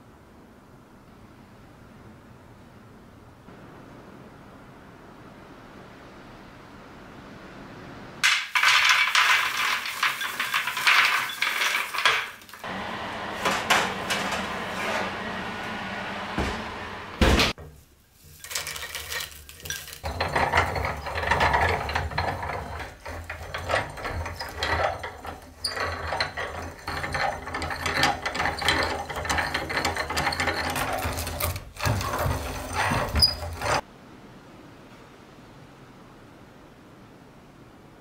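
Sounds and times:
hand-cranked mill grinding: 0:08.6 - 0:15.2, 0:18.3 - 0:33.8.

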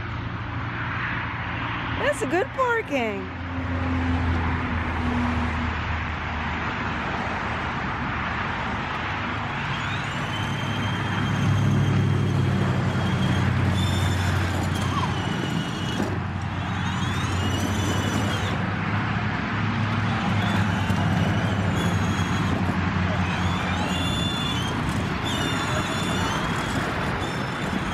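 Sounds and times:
toy car motors rumbling: 0:09.4 - 0:27.9
high squeaky tones: 0:09.9 - 0:18.6, 0:20.0 - 0:27.9.

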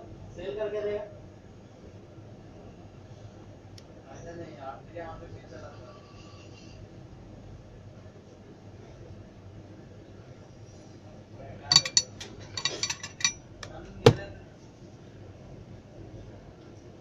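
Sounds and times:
metal tools clinking: 0:11.7 - 0:13.4.

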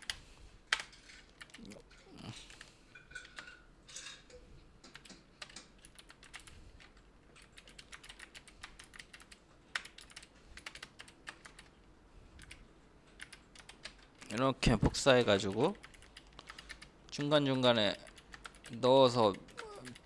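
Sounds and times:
computer keyboard typing: 0:00.0 - 0:01.7, 0:04.8 - 0:11.8, 0:12.4 - 0:14.4, 0:15.1 - 0:20.0.

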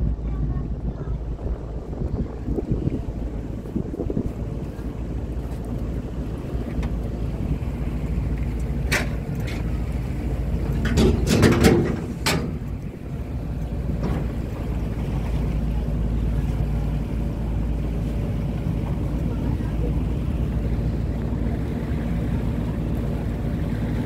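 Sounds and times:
boat engine droning: 0:00.0 - 0:24.0
sharp knocks and clatters: 0:10.8 - 0:12.6.

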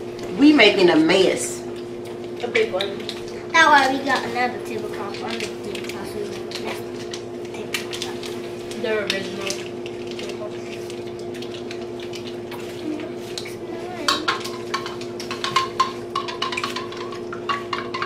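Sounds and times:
plastic cutlery tapping on plates: 0:14.0 - 0:18.0.

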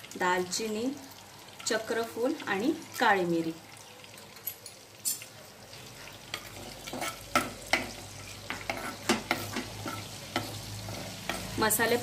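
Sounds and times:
spices sizzling in oil: 0:00.0 - 0:12.0
metal spoon scraping clay pot: 0:06.3 - 0:11.6.

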